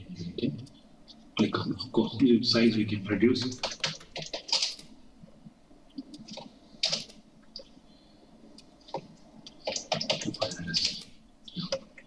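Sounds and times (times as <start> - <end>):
computer keyboard keys tapping: 3.5 - 4.9, 6.0 - 7.7, 8.9 - 12.0
mouse clicking: 5.9 - 7.8.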